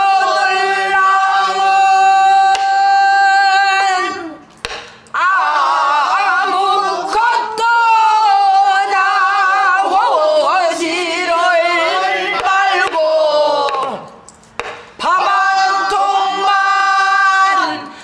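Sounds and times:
woman singing: 0.0s - 4.4s, 5.2s - 14.1s.

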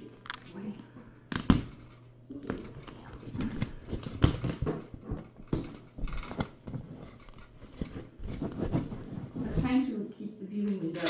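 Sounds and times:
cardboard rustling and scraping: 3.0s - 9.8s.

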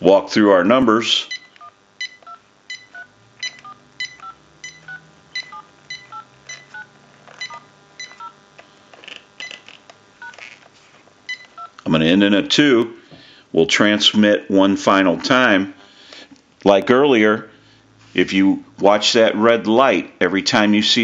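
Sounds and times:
telephone keypad touch-tone beeps: 1.3s - 8.4s, 11.3s - 11.8s.

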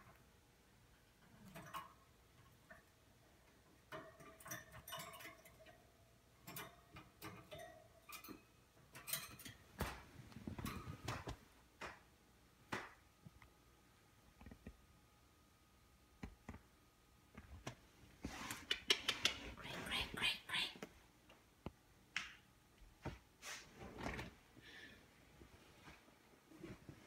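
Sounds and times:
clicks and ticks from wire birdcage: 1.2s - 2.9s, 3.7s - 9.6s.

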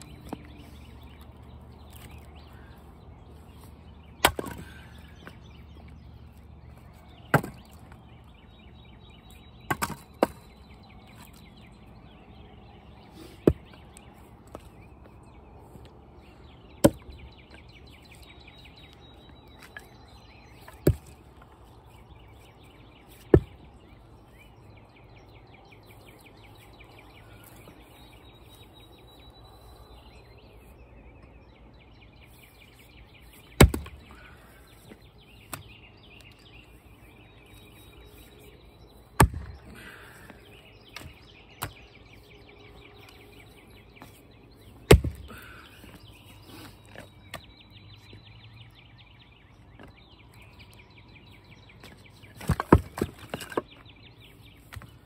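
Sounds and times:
axe splitting firewood: 4.2s - 5.4s, 7.2s - 8.0s, 9.6s - 10.4s, 13.3s - 14.0s, 16.8s - 17.2s, 20.6s - 21.2s, 23.1s - 23.7s, 33.3s - 36.3s, 39.2s - 41.8s, 44.8s - 47.4s, 52.4s - 53.8s.

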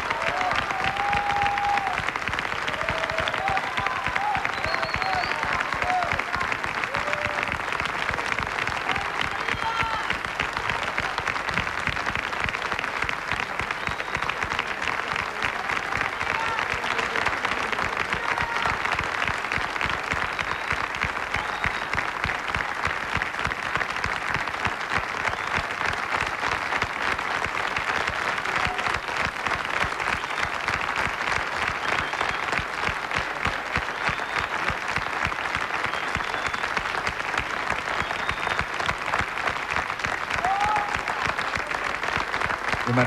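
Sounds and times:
audience applauding: 0.0s - 43.0s.

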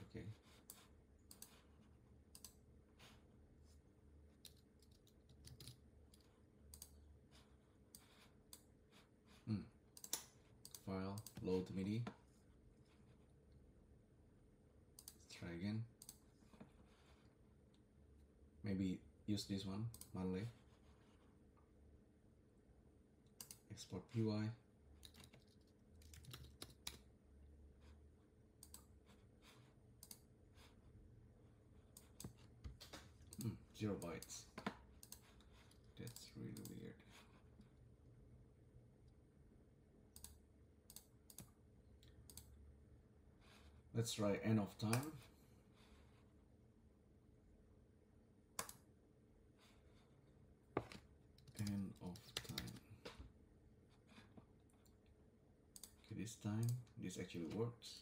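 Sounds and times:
low room hum: 0.0s - 58.0s
computer mouse clicks: 0.6s - 1.7s, 2.3s - 2.6s, 4.3s - 7.0s, 9.9s - 12.2s, 15.0s - 15.2s, 16.0s - 16.7s, 19.9s - 20.2s, 23.3s - 23.8s, 25.0s - 27.1s, 28.6s - 30.3s, 31.9s - 37.3s, 40.1s - 42.6s, 48.6s - 48.9s, 50.9s - 53.2s, 55.8s - 56.0s
mouse clicks: 2.3s - 2.6s.

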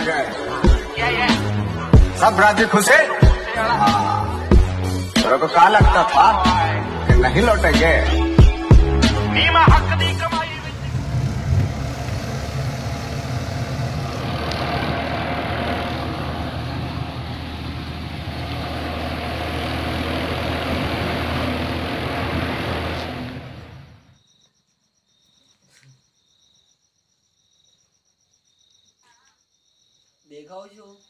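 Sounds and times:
road noise: 9.4s - 24.2s
tractor engine droning: 9.4s - 24.2s
crickets trilling: 23.8s - 31.0s.

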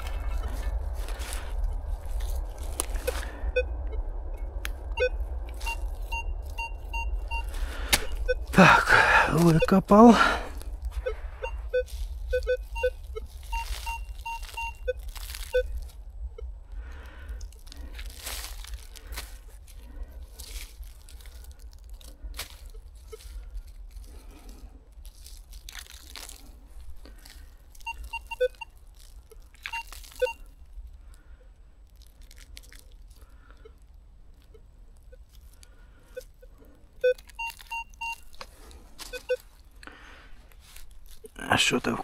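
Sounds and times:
hand digging in leaf litter: 0.0s - 3.5s, 11.8s - 15.9s, 17.6s - 30.3s
metal detector short beeps: 11.0s - 15.7s, 37.0s - 38.2s.

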